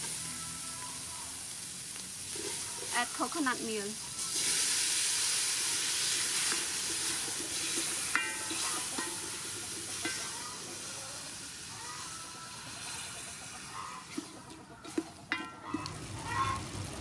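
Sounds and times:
liquid sizzling in a hot pot: 0.0 - 17.0
wooden spoon stirring: 6.4 - 10.5.

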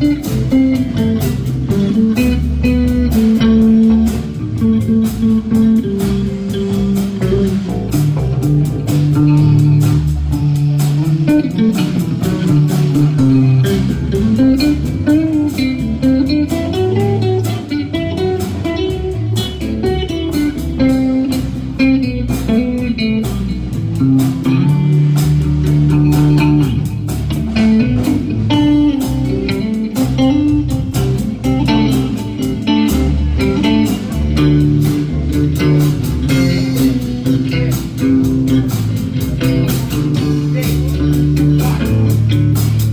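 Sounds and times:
live blues-rock band playing: 0.0 - 42.9.

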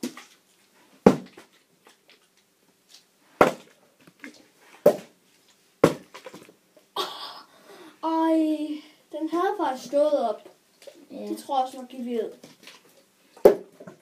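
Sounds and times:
plastic bottles thudding on carpet: 1.0 - 1.6, 5.8 - 6.5, 13.4 - 14.0.

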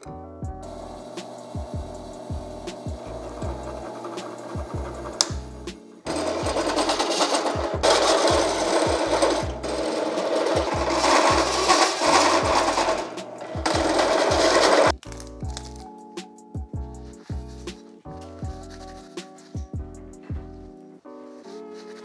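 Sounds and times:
background music with bass line: 0.0 - 7.0, 7.6 - 9.9, 10.6 - 20.9
drill press grinding metal: 0.7 - 5.5, 6.1 - 14.9.

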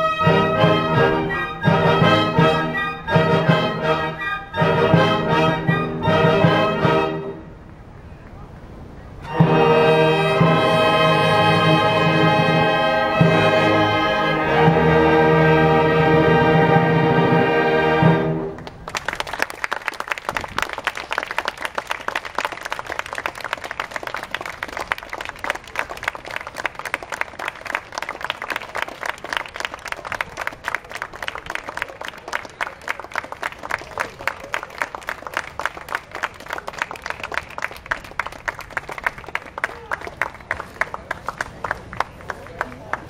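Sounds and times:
audience applauding: 18.6 - 43.0.

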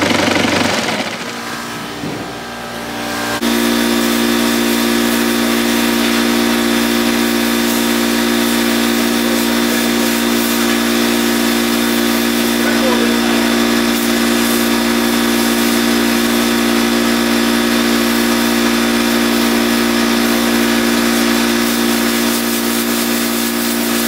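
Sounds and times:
motor humming steadily: 0.0 - 24.0.

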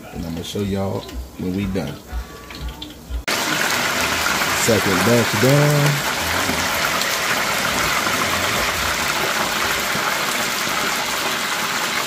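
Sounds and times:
oil bubbling and sizzling in fryer: 2.5 - 12.0.

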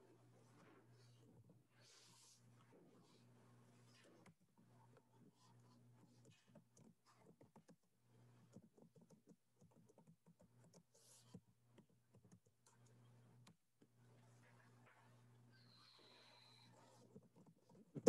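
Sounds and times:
typing on computer keyboard: 8.5 - 10.9.

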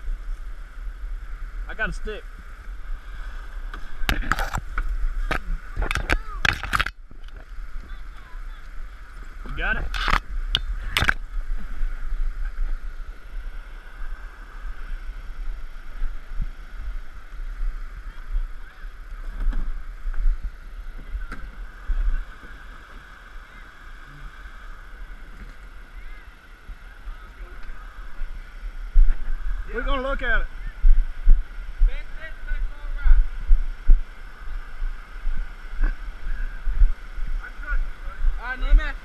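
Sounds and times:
low microphone rumble: 0.0 - 39.0.

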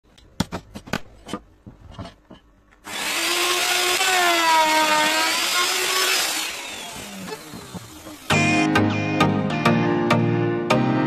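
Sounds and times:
power tool cutting wood: 2.8 - 8.7.

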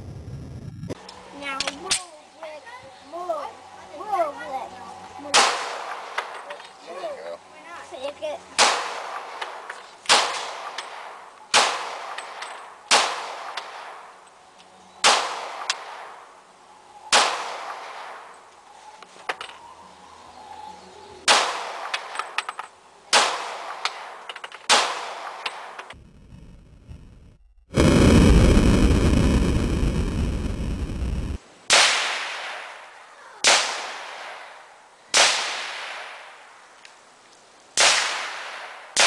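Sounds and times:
pistol shots with ringing echo: 5.3 - 6.5, 8.6 - 14.1, 15.0 - 16.2, 17.1 - 18.3, 21.3 - 25.8.

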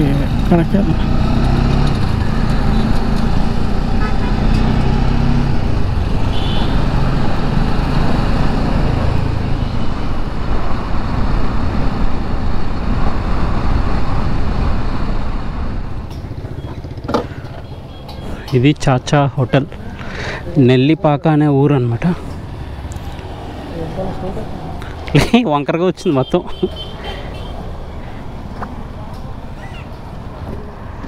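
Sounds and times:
traffic: 0.0 - 31.0
motorcycle engine running: 16.2 - 18.0.

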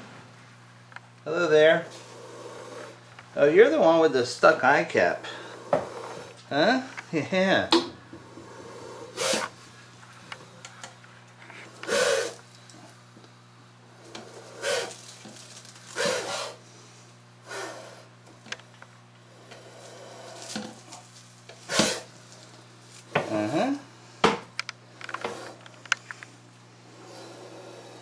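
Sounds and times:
snake hissing in breathy bursts: 1.9 - 3.0, 5.2 - 6.4, 8.2 - 9.6, 11.7 - 12.4, 14.0 - 15.1, 15.9 - 18.1, 19.3 - 20.6, 21.6 - 22.1, 26.8 - 28.0.

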